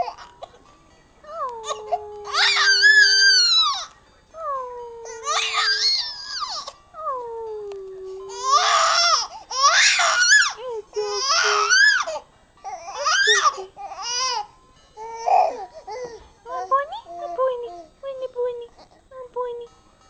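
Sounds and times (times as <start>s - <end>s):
baby crying: 0.0s - 0.6s, 1.3s - 3.9s, 4.6s - 7.2s, 8.1s - 17.9s.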